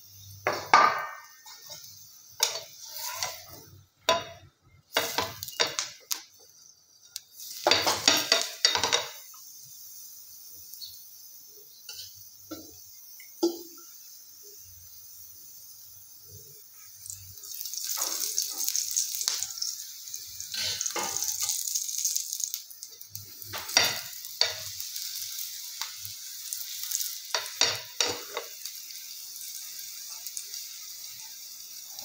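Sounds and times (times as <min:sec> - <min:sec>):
flatbread sizzling in a pan: 0:00.0 - 0:32.0
metal spoon scraping: 0:01.4 - 0:04.4.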